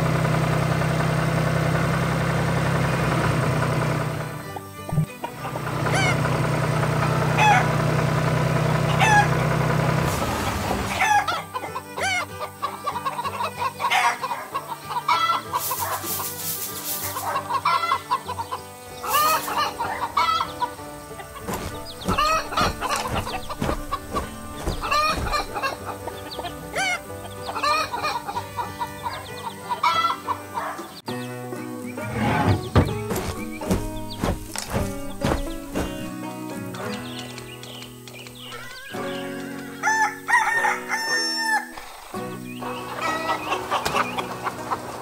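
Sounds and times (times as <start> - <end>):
tractor engine hum: 0.0 - 11.9, 18.6 - 29.3, 31.8 - 39.3
hens clucking: 4.2 - 8.0, 8.8 - 9.9, 10.8 - 31.0, 31.8 - 36.2, 39.8 - 45.0
rooster crowing: 7.4 - 7.8, 9.0 - 9.4, 10.9 - 12.3, 21.5 - 25.8, 39.8 - 41.9
soft background music: 10.9 - 45.0.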